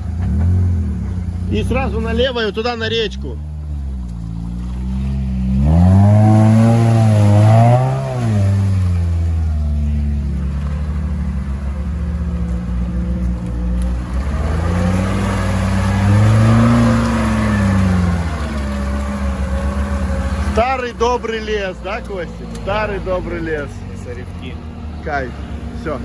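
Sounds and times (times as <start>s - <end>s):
car engine revving: 0.0s - 26.0s.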